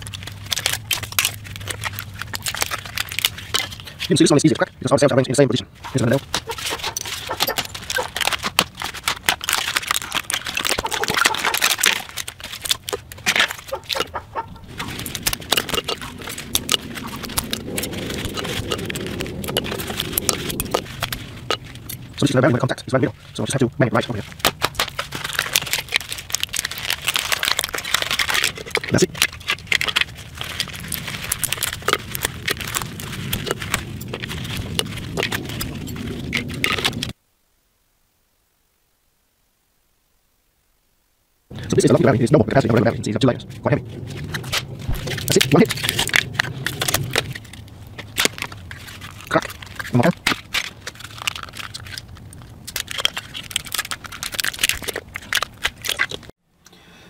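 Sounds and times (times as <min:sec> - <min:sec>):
plastic casing and cells clattering: 0:05.8 - 0:37.2
steady low rumble: 0:13.0 - 0:37.2, 0:41.5 - 0:56.3.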